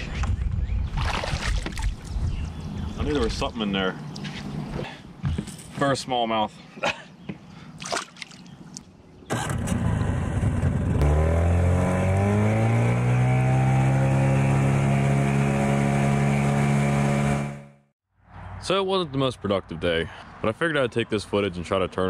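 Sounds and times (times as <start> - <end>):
outboard motor running: 9.4 - 17.7.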